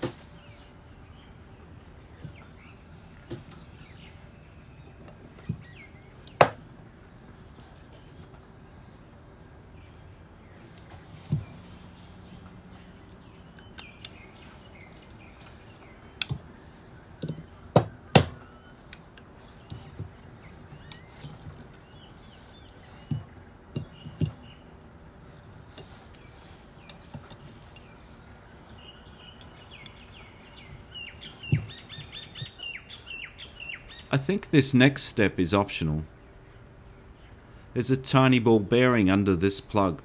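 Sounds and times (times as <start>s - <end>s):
birds chirping faintly: 0.0s - 40.0s.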